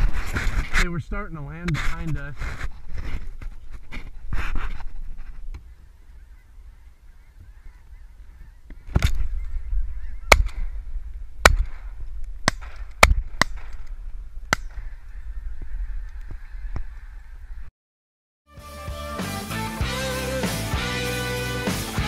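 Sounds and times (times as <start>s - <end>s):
geese honking overhead: 5.6s - 10.3s, 14.7s - 17.7s.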